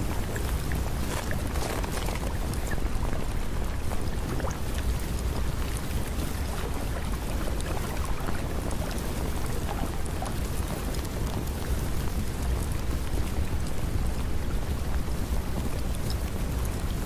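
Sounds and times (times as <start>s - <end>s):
raindrops ticking: 0.0s - 7.6s
steady rain: 0.0s - 17.0s.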